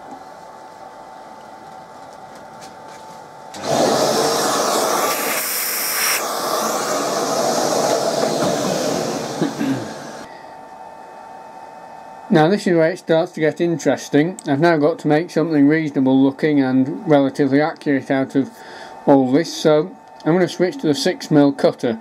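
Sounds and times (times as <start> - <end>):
workshop vacuum cleaner sucking: 3.6 - 10.3
faint steady hum: 9.2 - 22.0.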